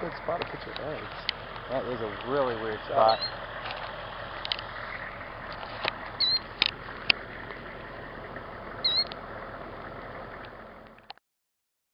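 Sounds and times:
shrill bird alarm calls: 0:03.0 - 0:03.4, 0:06.1 - 0:06.6, 0:08.8 - 0:09.1
sharp clicks: 0:05.5 - 0:07.6, 0:08.8 - 0:09.3.

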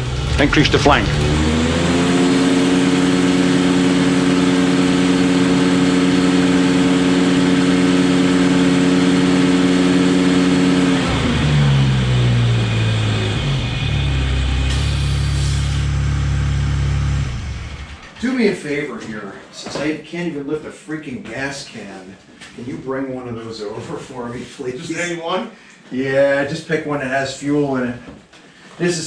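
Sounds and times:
tractor engine running: 0:00.0 - 0:01.7.

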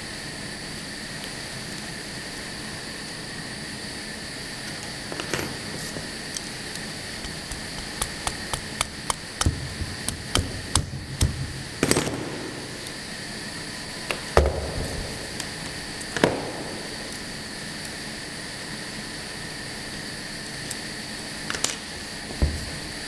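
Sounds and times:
steady machine hum: 0:00.0 - 0:23.0
machine knocks: 0:08.2 - 0:12.0, 0:22.4 - 0:22.7.

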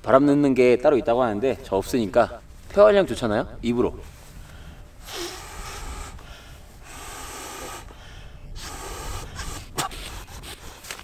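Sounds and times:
man blowing into air mattress valve: 0:05.0 - 0:10.7.

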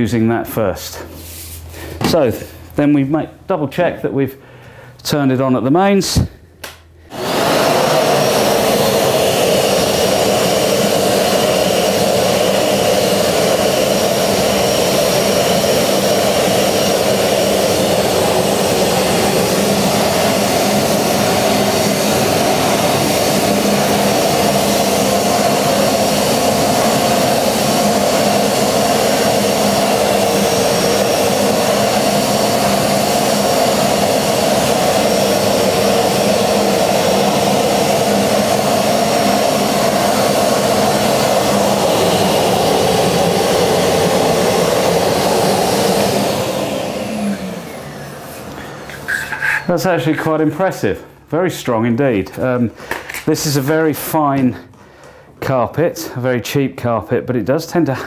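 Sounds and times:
vacuum cleaner running: 0:07.0 - 0:51.5
nozzle sucking sawdust off carpet: 0:07.1 - 0:50.3.

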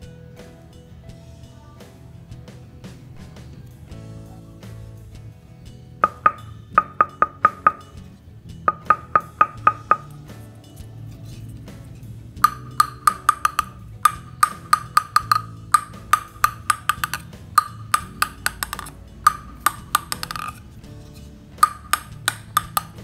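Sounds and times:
table tennis ball bouncing on wood: 0:06.0 - 0:08.0, 0:08.7 - 0:10.2, 0:12.4 - 0:20.8, 0:21.6 - 0:23.0.

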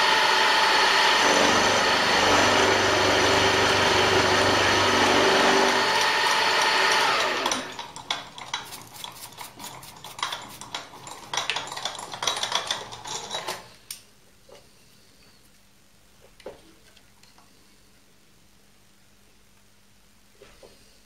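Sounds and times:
end mill cutting metal: 0:00.0 - 0:07.8
brush sweeping metal chips: 0:08.4 - 0:11.3.

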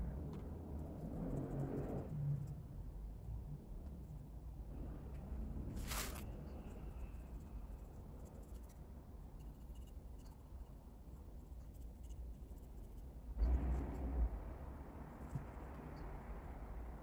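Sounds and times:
brief rustle: 0:05.7 - 0:06.3
paintbrush scratching on cement: 0:05.7 - 0:13.1.

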